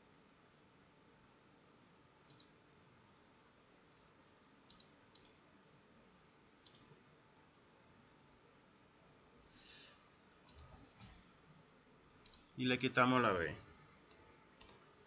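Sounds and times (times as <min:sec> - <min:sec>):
computer mouse double-clicks: 0:02.3 - 0:02.6, 0:04.7 - 0:05.4, 0:06.6 - 0:06.9, 0:10.5 - 0:11.2, 0:12.2 - 0:12.5, 0:13.6 - 0:14.8.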